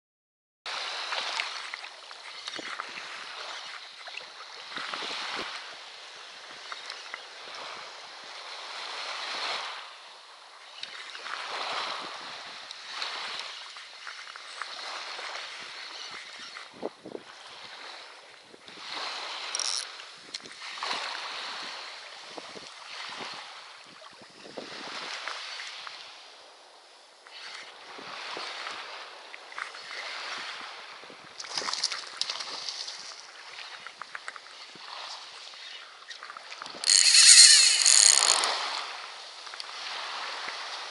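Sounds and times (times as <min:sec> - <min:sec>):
brief high squeak: 0:36.8 - 0:38.8
small clicks: 0:36.8 - 0:38.8.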